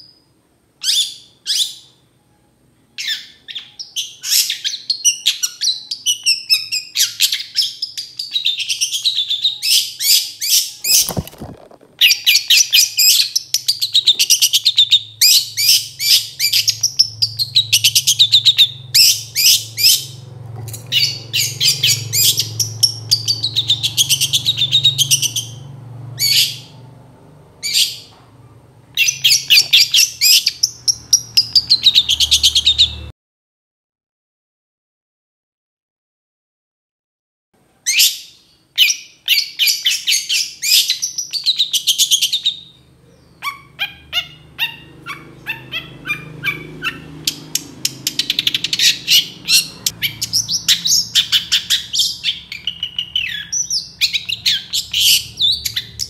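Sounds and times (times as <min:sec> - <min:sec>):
bird singing chattering notes: 0:03.0 - 0:26.7, 0:29.0 - 0:33.1, 0:39.4 - 0:56.0.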